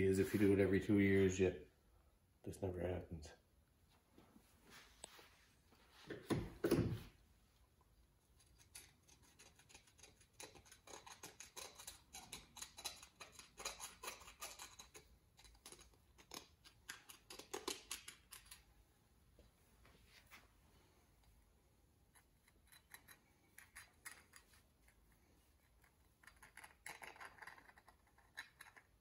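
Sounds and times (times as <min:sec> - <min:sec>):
metal pick scratching metal: 0:08.4 - 0:18.7.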